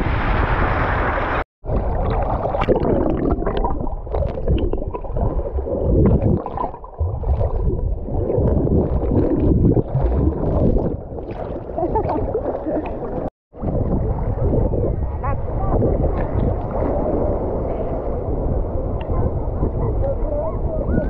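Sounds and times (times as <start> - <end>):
wind: 0.0 - 2.6, 10.7 - 21.0
surf: 0.0 - 21.0
water sloshing and gurgling: 0.8 - 21.0.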